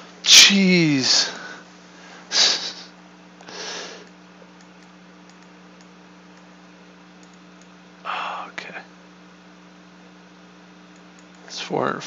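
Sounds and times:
low electrical hum: 0.0 - 12.0
man breathing through nose: 3.4 - 4.1
faint clicks: 4.0 - 6.5, 7.2 - 7.8, 10.9 - 11.4.

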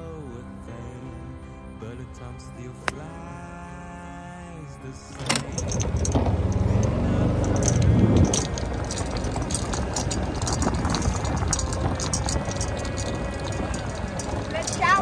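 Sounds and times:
golf cart rumbling over grass: 5.2 - 15.0
loose gear rattling and jingling: 5.2 - 15.0.

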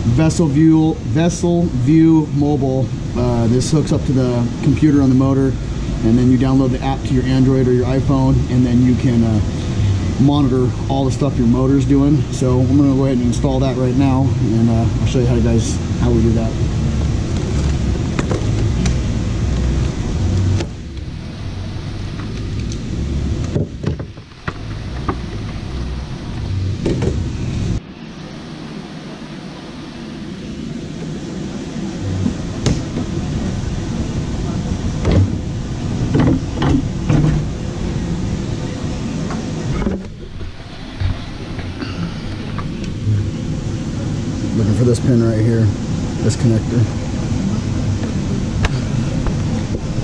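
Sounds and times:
steady background noise: 0.0 - 50.0
steady low rumble: 0.0 - 50.0
hard cover knocks and clunks: 23.5 - 25.5, 26.8 - 27.2, 35.0 - 35.4, 36.1 - 37.6.

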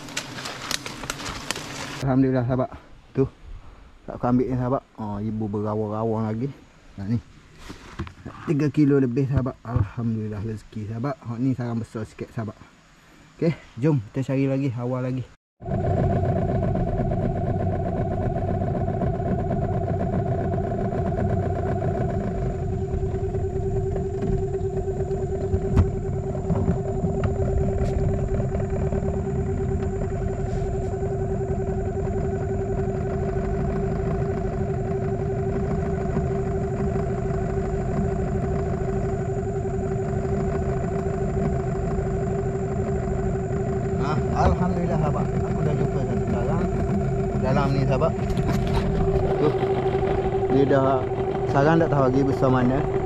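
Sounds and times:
outboard motor droning: 0.0 - 2.0, 15.6 - 53.0.

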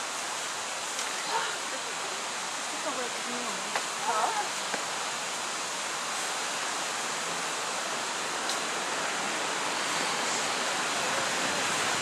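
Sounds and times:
steady rushing noise: 4.6 - 12.0.

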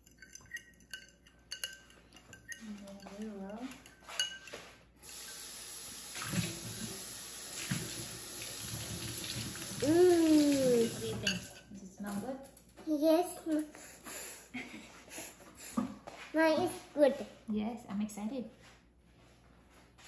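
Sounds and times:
fork clinking against ceramic bowl: 0.0 - 4.6, 11.2 - 11.7
kitchen tap running: 5.0 - 11.6
person's voice: 9.8 - 11.4.

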